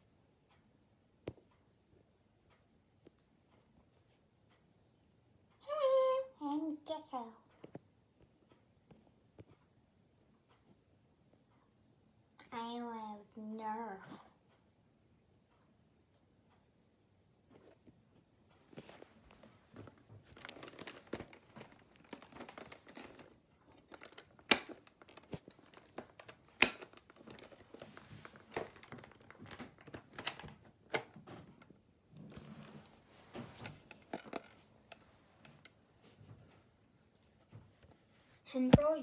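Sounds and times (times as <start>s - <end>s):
fabric rustling and crinkling: 18.6s - 30.6s
sharp clicks and taps: 18.8s - 31.8s.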